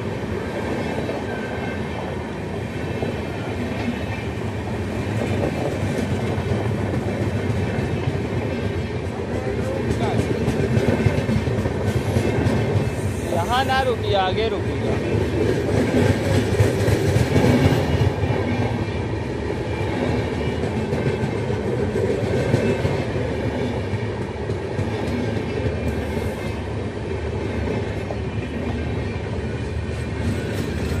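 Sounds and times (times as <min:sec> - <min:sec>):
train wheels rumbling on rail: 0:00.0 - 0:31.0.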